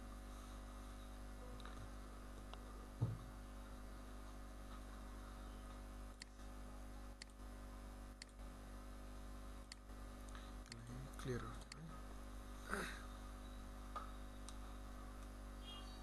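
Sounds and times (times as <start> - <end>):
low electrical mains hum: 0.0 - 16.0
low thump: 3.0 - 3.3.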